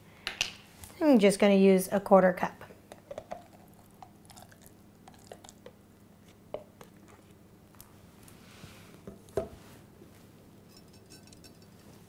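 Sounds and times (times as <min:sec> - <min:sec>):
soft wet squishes: 0:02.9 - 0:08.6.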